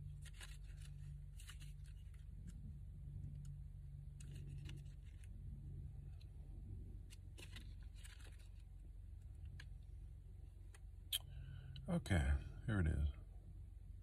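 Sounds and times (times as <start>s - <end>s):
paper pages rustling: 0.0s - 2.6s, 4.1s - 5.4s, 7.0s - 8.8s
steady low hum: 0.0s - 14.0s.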